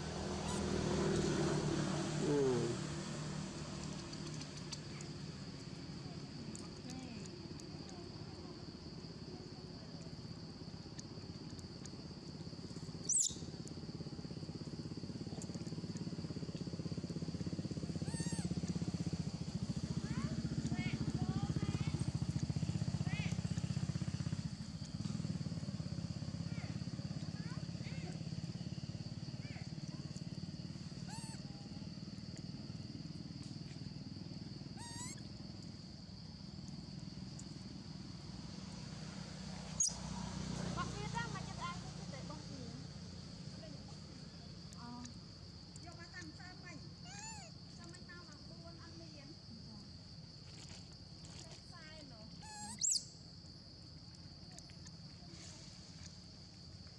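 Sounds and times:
motorcycle engine running: 0.0 - 6.3, 12.6 - 46.3
high insect drone: 0.0 - 56.9.

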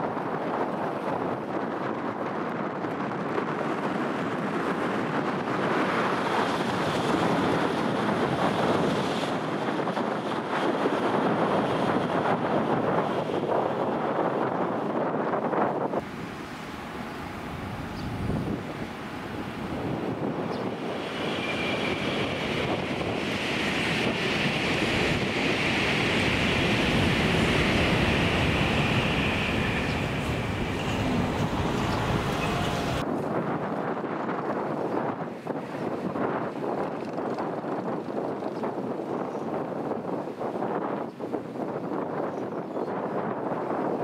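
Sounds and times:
bullet train rushing past: 0.0 - 36.9.

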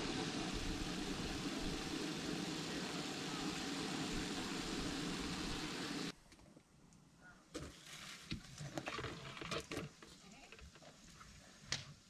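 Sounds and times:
meat sizzling in a skillet: 0.0 - 6.1.

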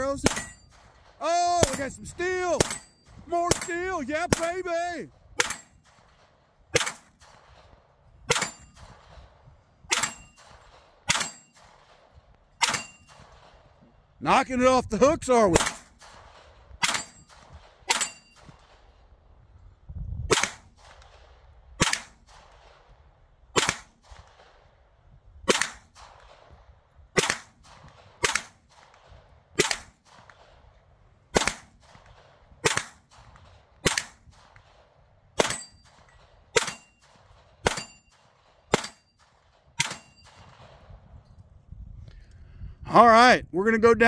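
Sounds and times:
gunshots: 0.0 - 13.8, 15.3 - 19.2, 20.3 - 41.2
steel target ringing: 0.2 - 0.8, 2.6 - 3.9, 8.3 - 8.8, 9.9 - 10.5, 11.1 - 11.6, 12.6 - 13.2, 17.9 - 18.5, 35.4 - 37.1, 37.7 - 38.2, 39.8 - 40.5.

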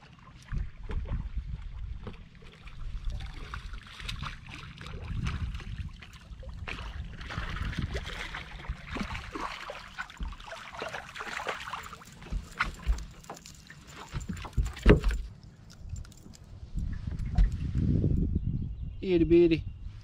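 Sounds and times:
fish splashing at surface: 6.7 - 13.0
fish thumping onto deck: 10.0 - 15.3.

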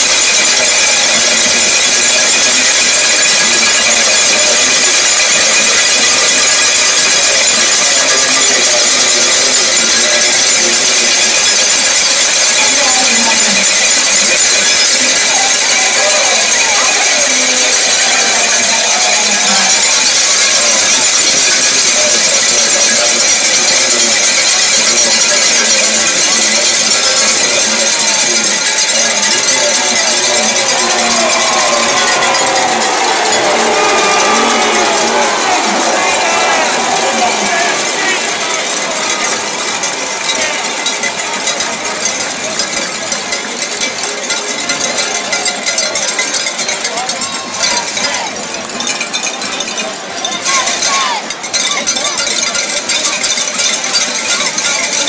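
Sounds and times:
cowbells clanging: 0.0 - 55.0
crowd voices: 0.0 - 55.0.

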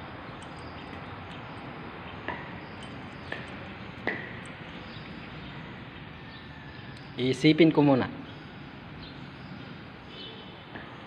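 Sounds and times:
light ringing clinks: 0.0 - 5.8
steady background hum: 0.0 - 11.0.

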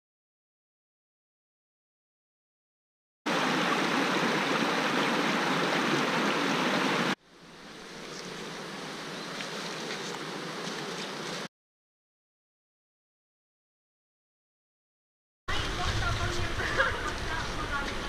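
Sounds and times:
river rushing over rocks: 3.3 - 7.2
soft water sound: 3.3 - 10.7.

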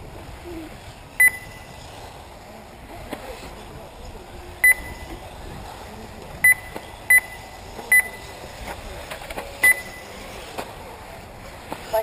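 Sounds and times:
faint steady background noise: 0.0 - 12.0
sharp electronic beeps: 1.2 - 1.7, 4.6 - 5.1, 6.4 - 8.2, 9.6 - 10.0.

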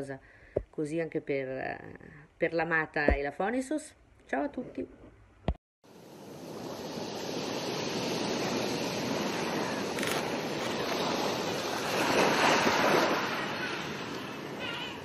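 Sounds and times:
sea waves washing on shore: 5.9 - 15.0.

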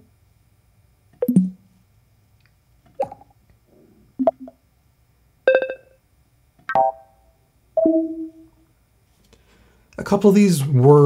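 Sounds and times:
alert chimes: 5.5 - 5.9.

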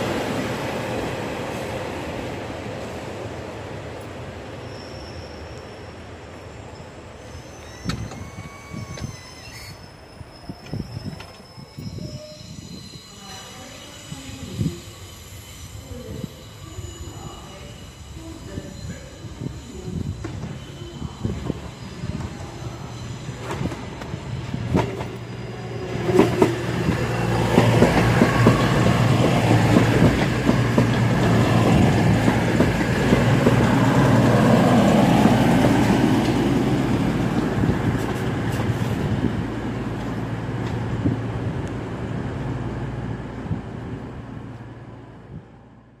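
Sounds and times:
diesel train engine hum: 21.0 - 46.0.

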